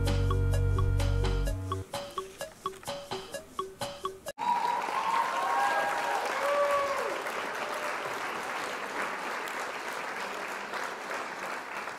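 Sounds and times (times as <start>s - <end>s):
crowd applauding: 4.4s - 11.9s.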